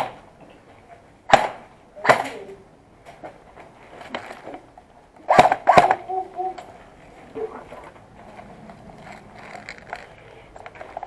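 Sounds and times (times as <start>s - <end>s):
airsoft gun shots: 0.0s - 0.2s, 1.3s - 2.4s, 5.3s - 6.1s.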